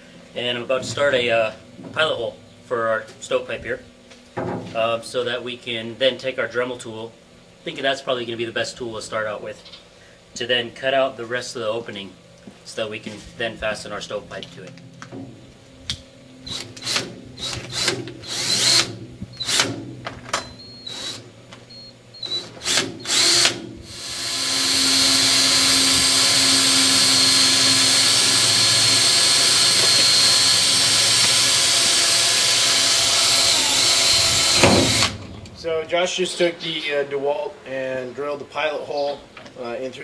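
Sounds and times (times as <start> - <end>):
cordless drill boring through steel: 16.5 - 19.7, 20.8 - 21.2, 22.2 - 35.2.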